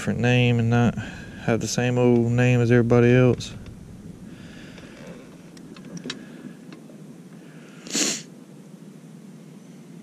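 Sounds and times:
steady low hum: 0.0 - 10.0
microphone handling rustle: 0.9 - 6.6.

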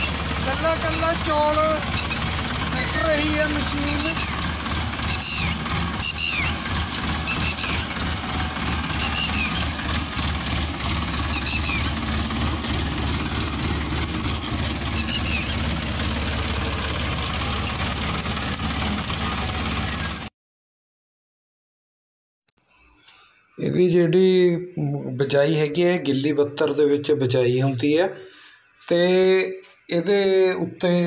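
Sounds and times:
tractor engine running: 0.0 - 20.3
short high chirps: 11.2 - 11.9.

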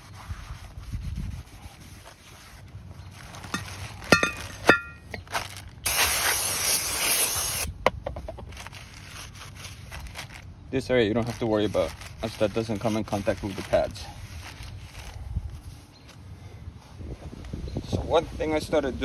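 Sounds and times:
cloth rubbing metal rotor: 0.0 - 5.0
plastic bag rustling: 2.0 - 6.4, 8.4 - 16.2
aerosol spray hissing: 5.9 - 7.7.

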